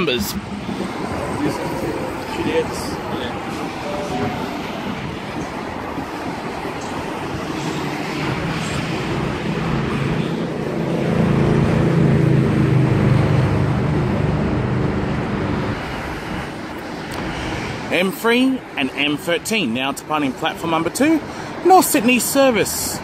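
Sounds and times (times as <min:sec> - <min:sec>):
deep electric hum: 0:00.0 - 0:05.2
electric train rolling: 0:00.0 - 0:11.4.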